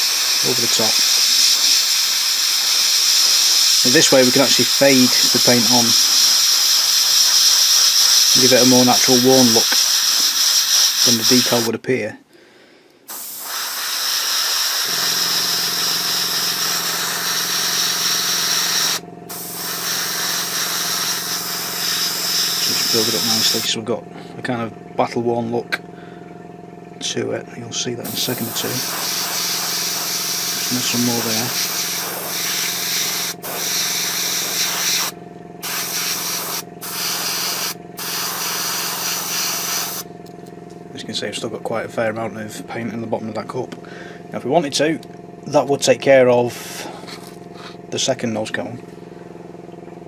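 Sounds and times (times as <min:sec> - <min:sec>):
airbrush spraying hiss: 0:00.0 - 0:11.7, 0:13.1 - 0:23.7, 0:28.0 - 0:40.1
air compressor motor hum: 0:00.0 - 0:11.8, 0:12.6 - 0:44.4, 0:46.4 - 0:48.0.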